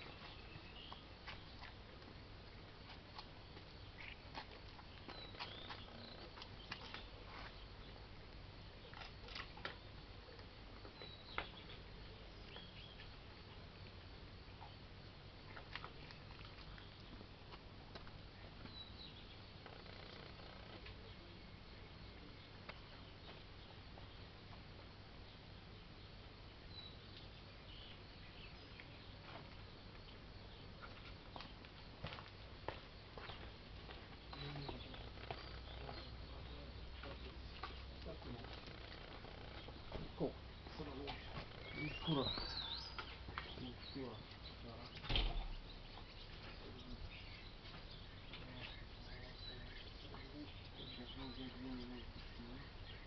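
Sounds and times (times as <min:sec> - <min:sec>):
faint background hiss: 0:00.0 - 0:53.0
small birds chirping: 0:00.0 - 0:53.0.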